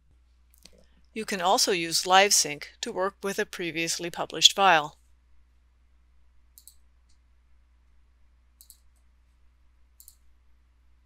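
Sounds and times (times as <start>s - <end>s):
computer mouse clicks: 6.6s - 7.2s, 8.6s - 9.1s, 10.0s - 10.3s.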